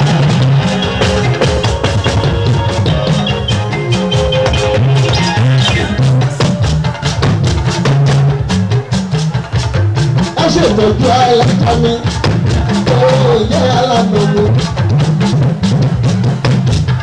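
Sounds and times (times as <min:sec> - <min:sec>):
wavering melody: 0:00.0 - 0:09.6
fast drum beat: 0:00.0 - 0:17.0
repeating bass line: 0:00.0 - 0:17.0.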